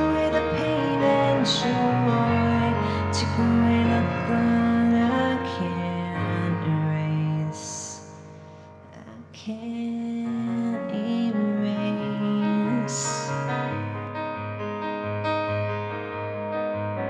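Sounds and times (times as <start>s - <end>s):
woman singing: 0.0s - 8.2s, 8.9s - 13.7s
digital piano: 0.0s - 17.0s.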